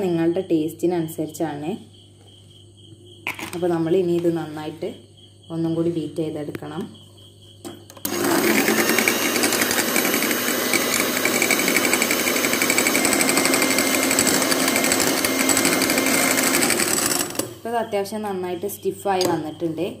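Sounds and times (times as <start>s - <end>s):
electric hand mixer running: 8.0s - 17.7s.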